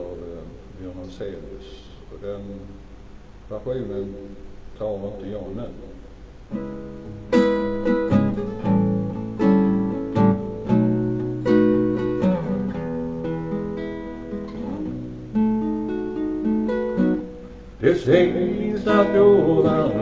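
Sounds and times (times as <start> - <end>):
acoustic guitar strumming: 6.4 - 20.0.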